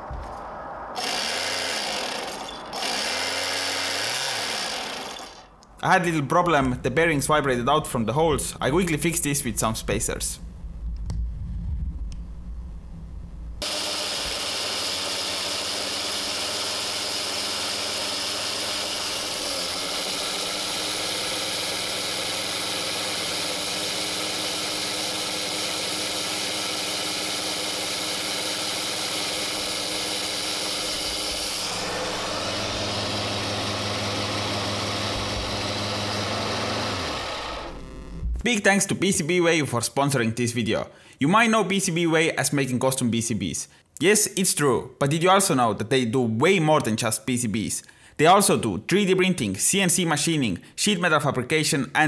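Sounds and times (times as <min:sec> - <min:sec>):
drone motors whining: 0:00.0 - 0:05.8, 0:13.6 - 0:38.4.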